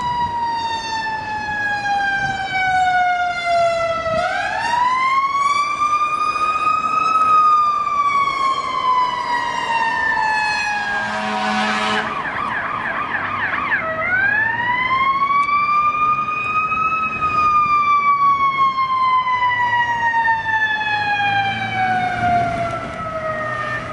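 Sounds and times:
electronic siren wailing: 0:00.0 - 0:23.9.

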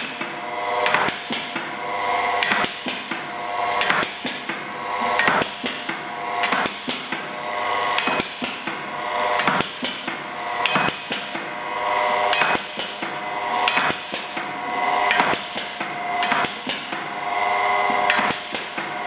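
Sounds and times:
machine clacks and knocks: 0:02.4 - 0:07.3, 0:08.0 - 0:08.8, 0:09.4 - 0:11.5, 0:12.3 - 0:17.1, 0:17.9 - 0:19.0.

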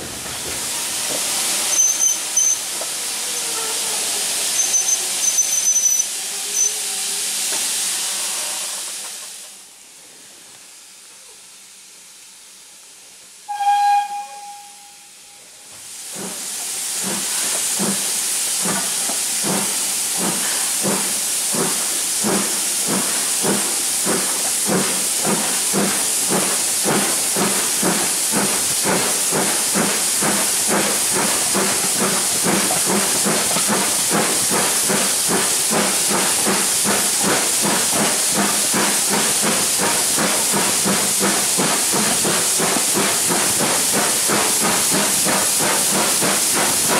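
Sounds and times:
steam locomotive exhaust beat: 0:00.0 - 0:09.9, 0:12.9 - 0:46.9
steam hissing: 0:00.0 - 0:46.9
train whistle blast: 0:01.7 - 0:02.6, 0:04.6 - 0:07.2, 0:13.4 - 0:15.6.

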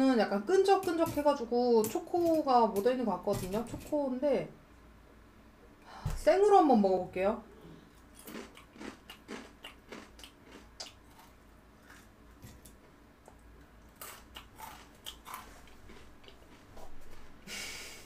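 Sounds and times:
cereal crunching while chewed: 0:08.1 - 0:12.1, 0:13.8 - 0:16.7.

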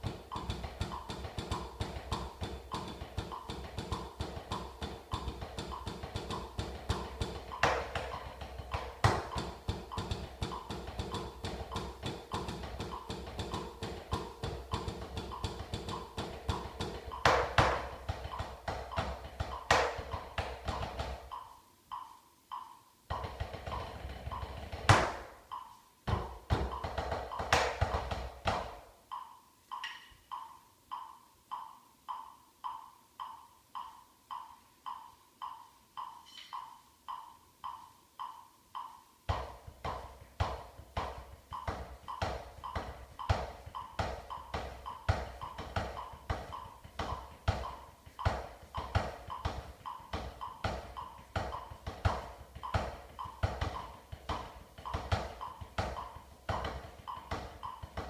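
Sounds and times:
drumsticks on practice pad: 0:00.0 - 0:58.0
steady metronome click: 0:00.0 - 0:58.0.

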